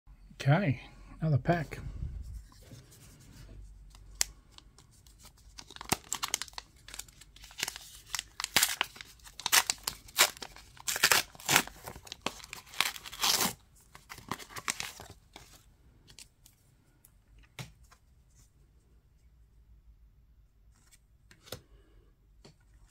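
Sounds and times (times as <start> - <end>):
wrapper tearing and crinkling: 5.4 - 15.5.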